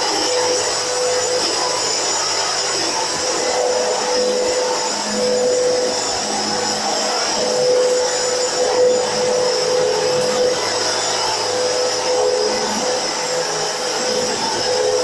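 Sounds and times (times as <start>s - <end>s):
upright vacuum cleaner running: 0.0s - 15.0s.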